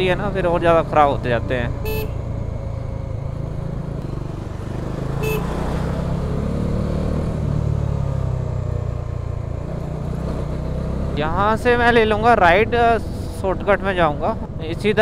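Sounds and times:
motorcycle engine running: 1.7s - 6.6s
short high beep: 1.8s - 2.2s, 5.2s - 5.5s.

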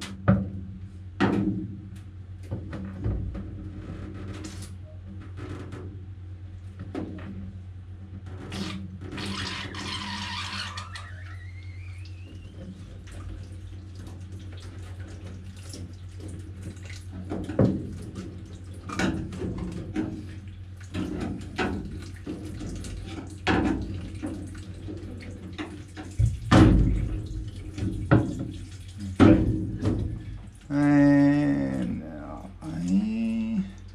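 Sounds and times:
electric fan humming: 30.1s - 33.9s.

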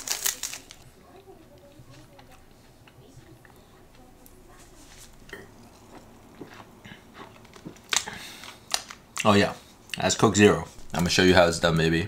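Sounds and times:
food packaging clicks and taps: 7.4s - 9.3s.

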